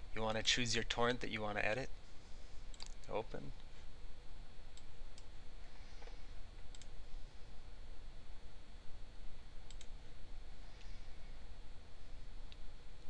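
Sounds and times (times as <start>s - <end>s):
low background hum: 0.0s - 13.0s
computer mouse clicks: 2.7s - 3.2s, 6.0s - 7.0s, 9.7s - 10.0s.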